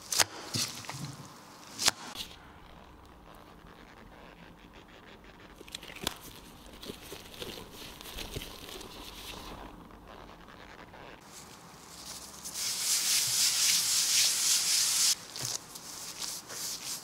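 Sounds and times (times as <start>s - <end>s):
plastic gloves crinkling: 5.6s - 9.8s, 11.2s - 17.0s.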